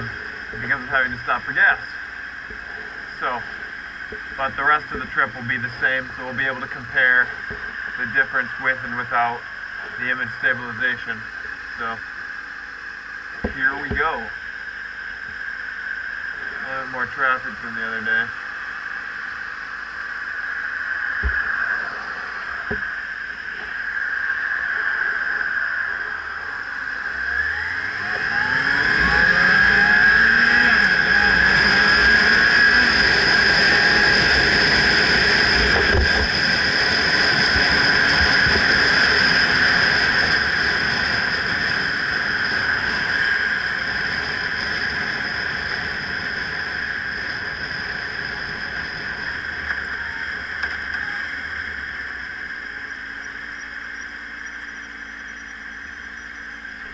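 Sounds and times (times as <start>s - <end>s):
motorcycle engine accelerating: 0.0s - 17.4s, 18.3s - 56.9s
wind rushing on microphone: 27.9s - 51.0s.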